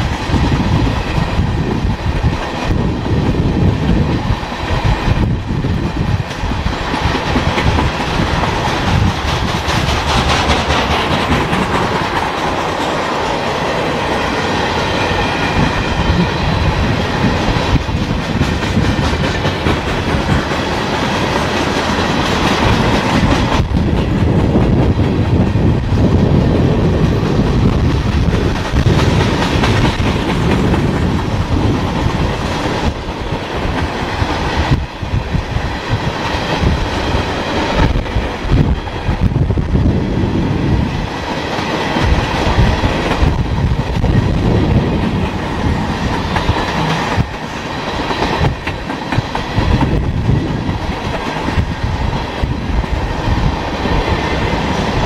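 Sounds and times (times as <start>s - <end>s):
freight train rumbling past: 0.0s - 55.0s
wheels clacking over rail joints: 6.0s - 25.3s, 26.9s - 39.2s, 41.0s - 53.0s.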